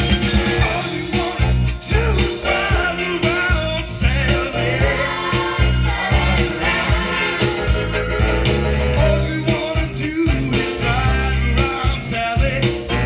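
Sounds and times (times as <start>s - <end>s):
song with singer over steady beat: 0.0s - 13.0s.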